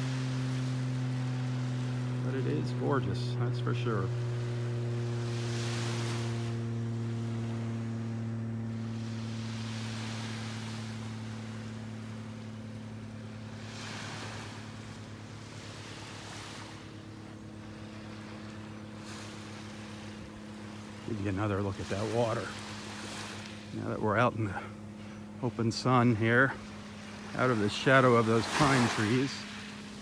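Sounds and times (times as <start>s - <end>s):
airplane droning overhead: 0.0s - 30.0s
small waves washing on beach: 0.0s - 30.0s.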